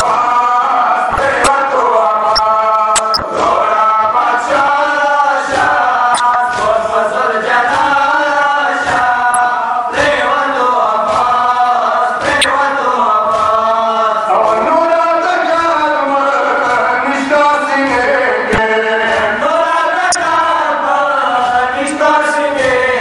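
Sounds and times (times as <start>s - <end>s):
men chanting: 0.0s - 23.0s
hands striking chests: 3.0s - 3.3s.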